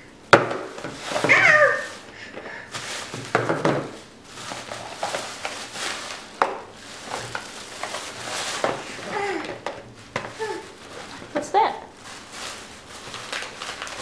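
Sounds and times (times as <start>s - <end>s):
plastic bag rustling: 0.4s - 14.0s
cardboard boxes knocking on table: 3.1s - 4.0s.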